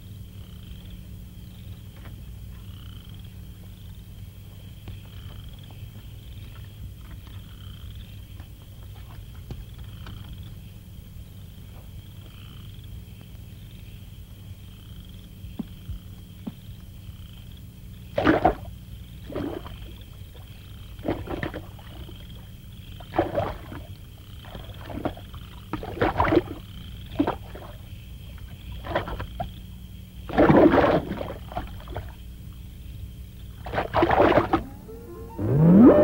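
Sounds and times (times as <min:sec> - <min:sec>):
steady low hum: 0:00.0 - 0:36.0
water splashing and bubbling: 0:18.2 - 0:22.3, 0:23.0 - 0:27.9, 0:28.5 - 0:29.5, 0:30.3 - 0:32.2, 0:33.6 - 0:34.8
faint high tone: 0:34.6 - 0:36.0.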